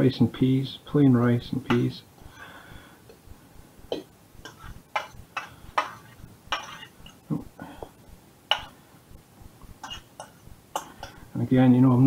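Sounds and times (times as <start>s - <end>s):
fork clinking on metal pan: 4.4s - 7.2s, 9.8s - 11.2s.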